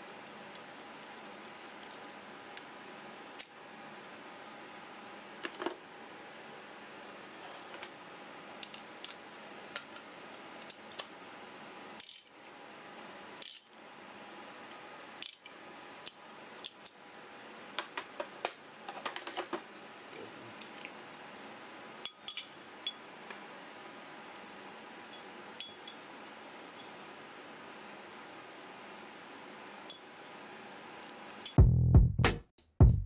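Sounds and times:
metal sockets clinking: 22.0 - 23.0.

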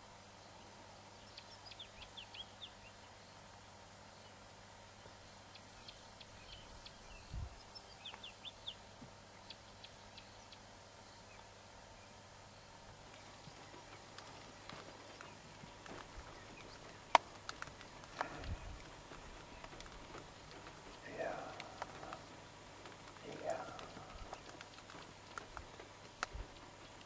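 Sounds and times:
background hiss: 0.0 - 27.0
bird chirps: 1.2 - 3.4, 5.1 - 25.0.

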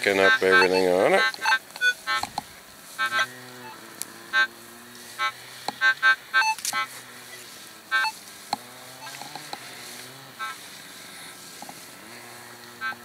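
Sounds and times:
small gas engine humming: 0.0 - 13.0
metal detector beeps: 0.1 - 2.4, 3.0 - 4.6, 5.2 - 8.3, 9.0 - 9.7, 10.4 - 10.6, 12.8 - 13.0.

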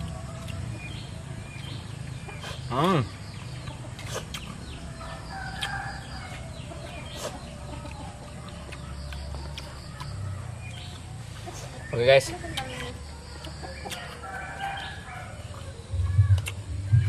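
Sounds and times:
chickens clucking: 0.0 - 17.0
rooster crowing: 4.8 - 6.6, 14.0 - 16.3.

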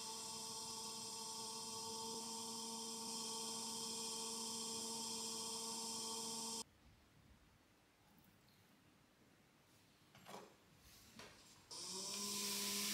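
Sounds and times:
pottery wheel motor humming: 0.0 - 6.6, 11.7 - 12.9
hiss: 12.2 - 12.9.

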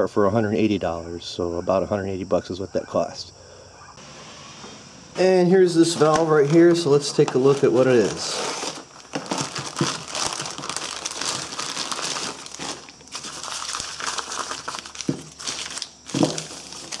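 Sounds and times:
plastic and paper crinkling: 5.7 - 17.0.

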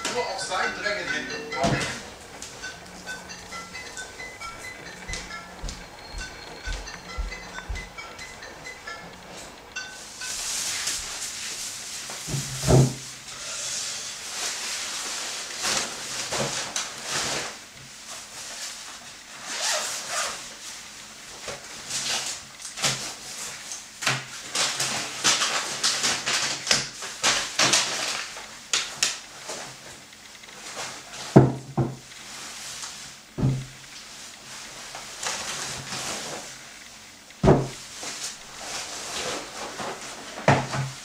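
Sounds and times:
plastic bag rustling: 9.4 - 29.9, 37.7 - 41.0
items knocking on wooden table: 31.4 - 32.0, 33.4 - 33.7, 37.4 - 37.8.

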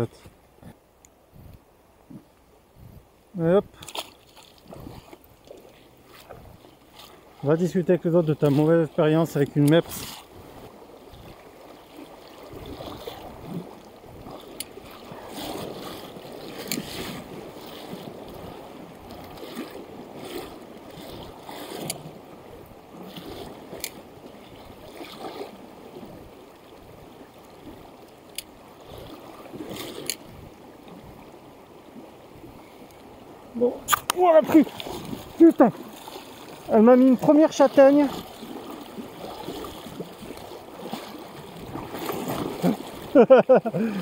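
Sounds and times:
river rushing over stones: 33.4 - 43.2.

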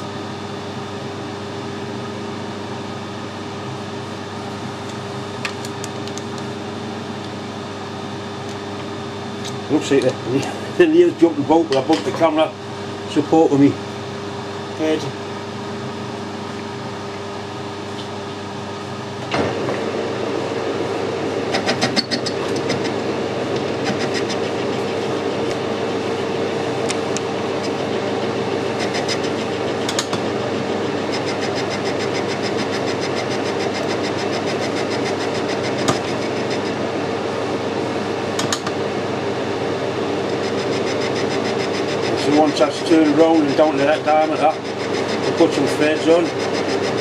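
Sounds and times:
metal lathe cutting: 20.2 - 37.0, 39.9 - 47.0.

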